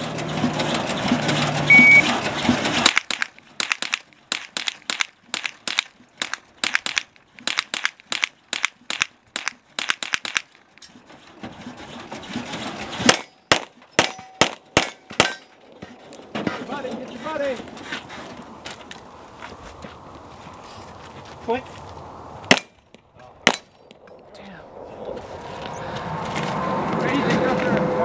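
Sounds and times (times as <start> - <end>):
rapid rifle fire: 2.7 - 10.6.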